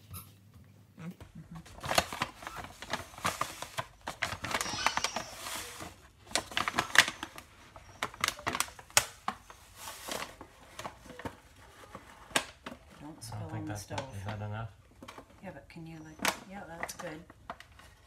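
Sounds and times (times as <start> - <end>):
paper pouch crinkling: 1.6 - 12.7.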